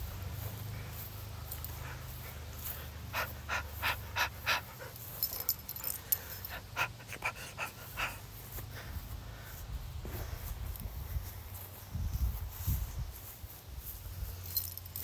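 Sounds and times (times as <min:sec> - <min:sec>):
dog panting: 0:00.1 - 0:09.2.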